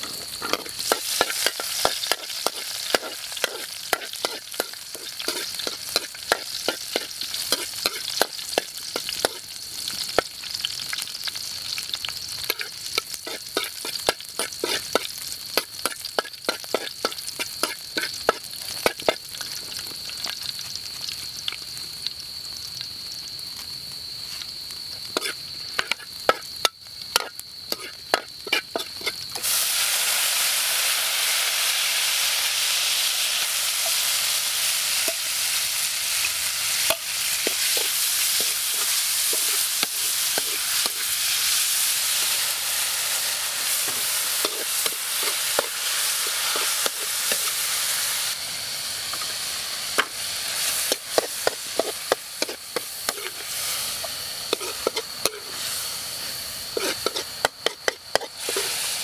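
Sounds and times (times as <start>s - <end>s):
metal spatula scraping a wok: 0.0s - 9.4s, 12.4s - 19.2s, 25.2s - 26.5s, 27.1s - 29.8s, 36.7s - 42.4s, 43.7s - 47.9s, 50.6s - 56.0s, 56.7s - 59.0s
garlic frying in oil: 0.0s - 59.0s
meat sizzling in hot oil: 0.0s - 59.0s.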